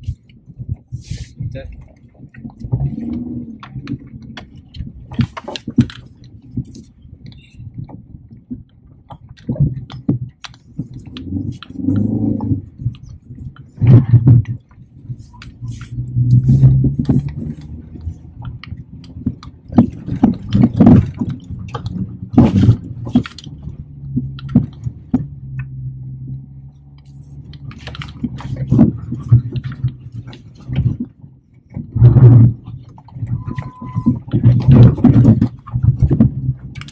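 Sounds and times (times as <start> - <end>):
car engine labouring: 0.0 - 36.9
stones knocking and clattering: 16.6 - 25.3.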